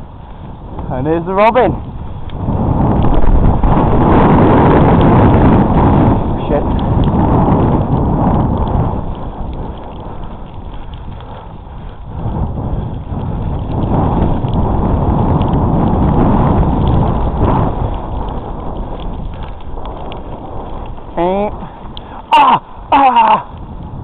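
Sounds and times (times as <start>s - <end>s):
bike rumbling and rattling: 0.0s - 24.0s
wind buffeting microphone: 0.0s - 24.0s.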